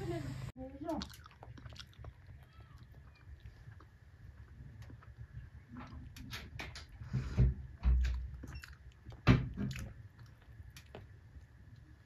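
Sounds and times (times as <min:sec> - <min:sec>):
scattered clicks and knocks: 0:05.7 - 0:08.3.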